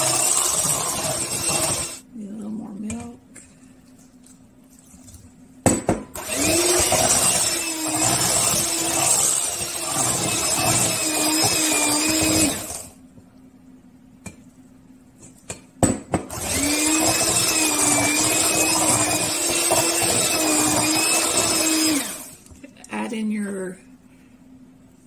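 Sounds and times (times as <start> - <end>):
electric mixer humming: 0.0 - 2.1, 6.1 - 13.0, 16.3 - 22.5.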